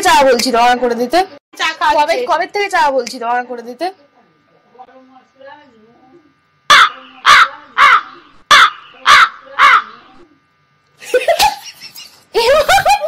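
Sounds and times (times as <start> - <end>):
crow cawing: 6.7 - 10.0.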